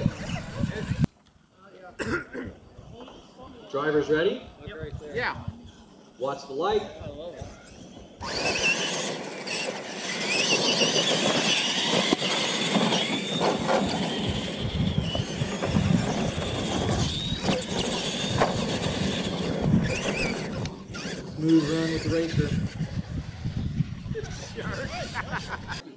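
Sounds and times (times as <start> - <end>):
electric motors whining: 0.0 - 1.1, 7.2 - 25.8
toy trucks thumping on ramps: 7.7 - 22.0.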